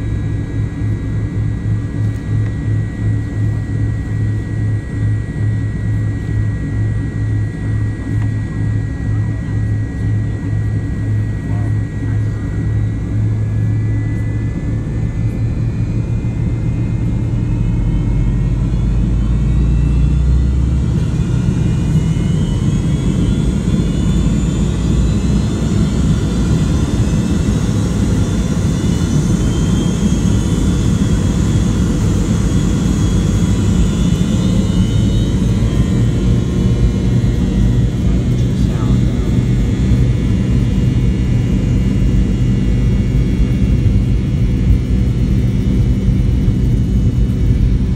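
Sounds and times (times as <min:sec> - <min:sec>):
jet engines spooling up: 0:00.0 - 0:47.9
rising whining engine tones: 0:12.0 - 0:47.9.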